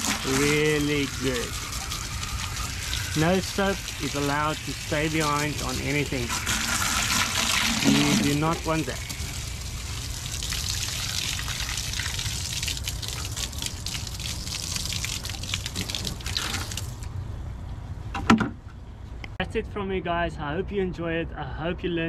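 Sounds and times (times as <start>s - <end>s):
water spraying from hose: 0.0s - 17.1s.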